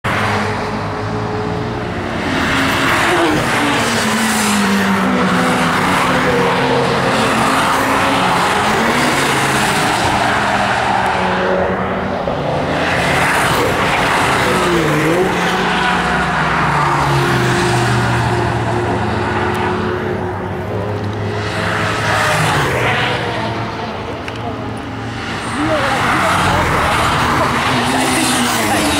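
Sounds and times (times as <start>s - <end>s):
race cars passing at speed: 0.0s - 28.9s.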